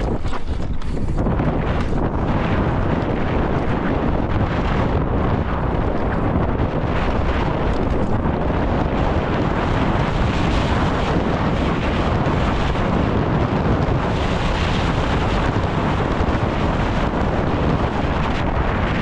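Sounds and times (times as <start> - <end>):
bike tyres rumbling on gravel: 0.0 - 19.0
wind rushing over microphone: 0.0 - 19.0.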